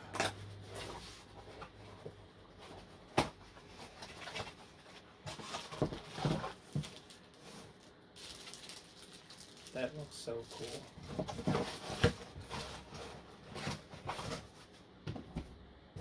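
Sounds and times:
plastic bag rustling: 3.6s - 14.7s.

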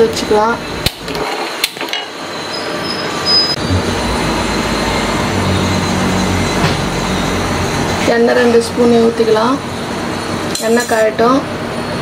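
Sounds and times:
low hum: 3.4s - 10.4s.

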